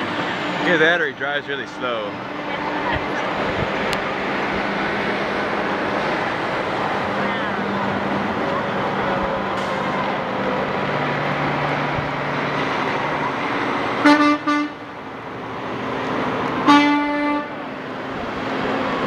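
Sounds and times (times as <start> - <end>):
truck engine and road noise: 0.0 - 19.0
truck horn honking: 14.0 - 14.9, 16.6 - 17.7.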